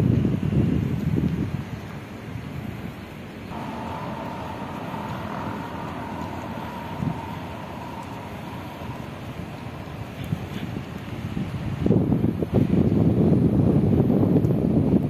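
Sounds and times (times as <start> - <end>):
wind rumble on microphone: 0.0 - 15.0
mechanical hum with whine: 3.5 - 13.0.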